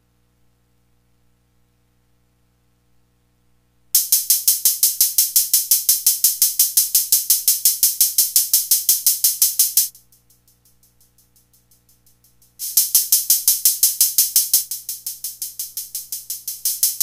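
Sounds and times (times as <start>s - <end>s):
low electrical hum: 0.0s - 17.0s
drum machine hi-hat pattern: 4.0s - 17.0s.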